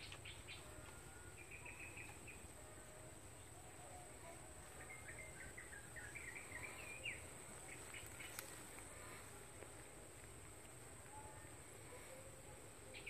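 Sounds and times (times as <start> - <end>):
bird chirping and twittering: 0.0 - 2.7, 3.3 - 9.2.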